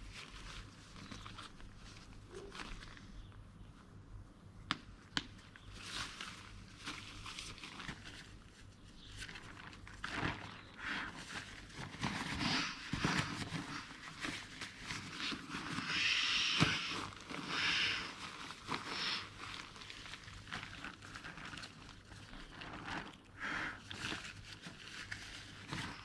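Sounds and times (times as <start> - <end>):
fabric rustling and crinkling: 0.0 - 3.4, 5.4 - 26.0.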